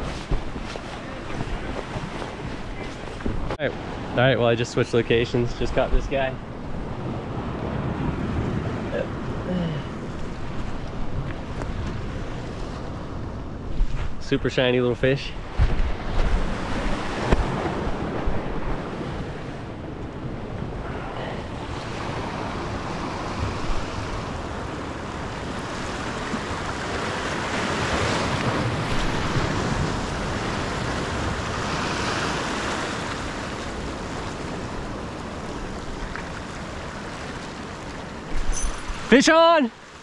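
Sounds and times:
surf breaking on beach: 0:00.0 - 0:04.1, 0:20.7 - 0:40.0
wind rumble on microphone: 0:00.0 - 0:04.2, 0:05.7 - 0:14.4, 0:15.2 - 0:39.1.

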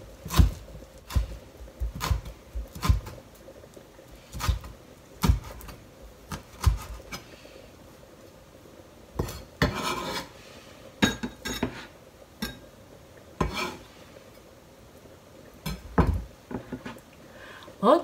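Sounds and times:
knife scraping: 0:09.2 - 0:10.3, 0:13.4 - 0:13.8.

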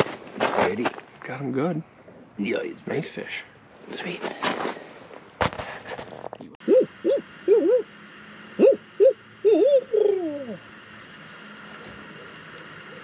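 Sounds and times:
owl hooting: 0:06.6 - 0:10.8.

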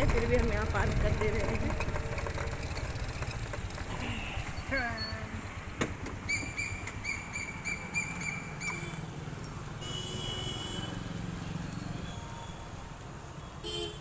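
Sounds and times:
low traffic rumble: 0:00.0 - 0:14.0
small animal chirping: 0:06.3 - 0:08.9.

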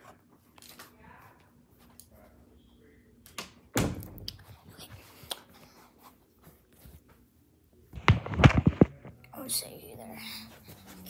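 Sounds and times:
door thudding shut: 0:03.7 - 0:04.2.

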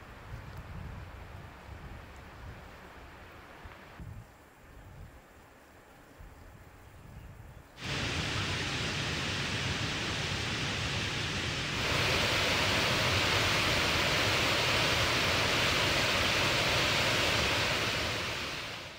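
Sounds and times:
rushing water of a stream: 0:07.8 - 0:18.9.

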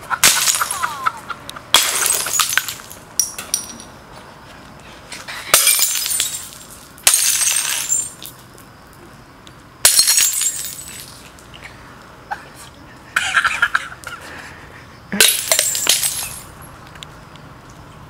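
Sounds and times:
glass bottles smashing on asphalt: 0:00.2 - 0:04.0, 0:05.5 - 0:08.6, 0:09.8 - 0:11.5, 0:15.2 - 0:16.7.

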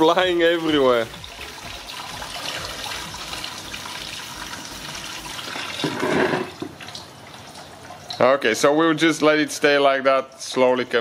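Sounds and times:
liquid pouring into plastic bucket: 0:01.0 - 0:08.2.

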